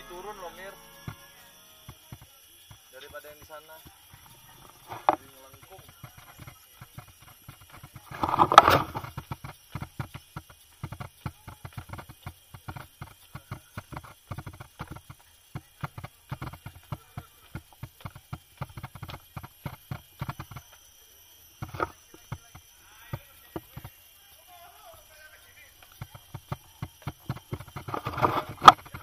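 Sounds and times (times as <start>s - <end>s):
quick taps and knocks: 1.9s - 20.7s, 25.8s - 29.0s.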